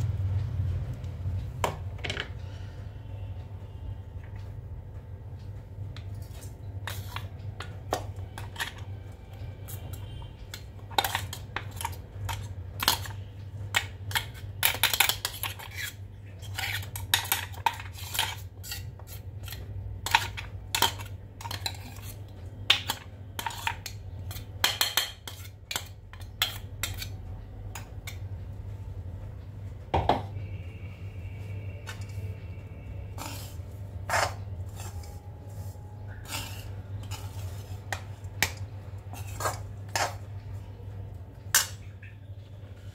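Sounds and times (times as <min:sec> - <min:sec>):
steady low hum: 0:00.0 - 0:42.9
steel spoons clinking and scraping: 0:14.1 - 0:22.3, 0:33.1 - 0:40.3.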